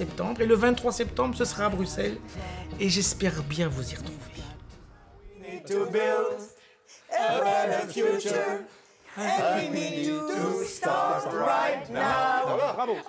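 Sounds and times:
men and women singing a cappella: 0:03.9 - 0:13.0.

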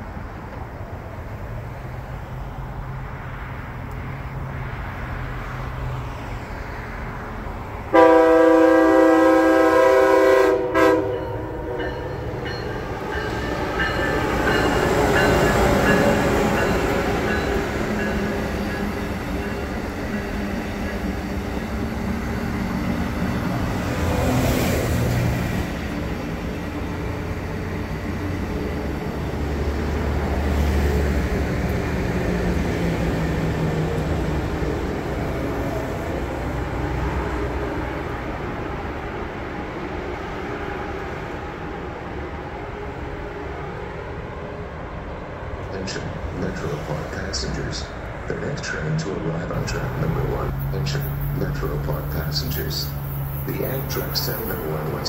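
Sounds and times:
train wheels rumbling on rails: 0:07.6 - 0:43.9, 0:45.6 - 0:55.0
train horn blast: 0:07.9 - 0:12.0.

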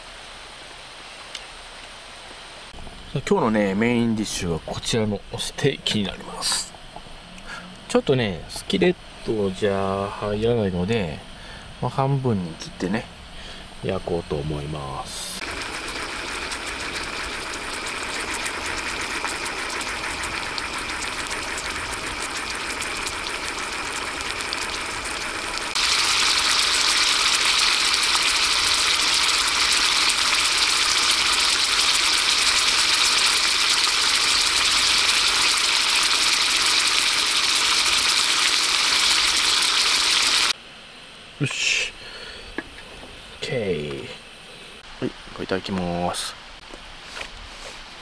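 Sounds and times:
steak sizzling in a skillet: 0:15.4 - 0:40.6.

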